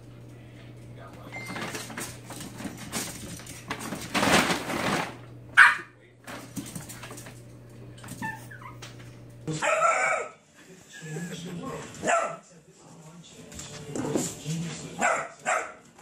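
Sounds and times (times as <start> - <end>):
dog barking sharply: 5.6 - 5.9.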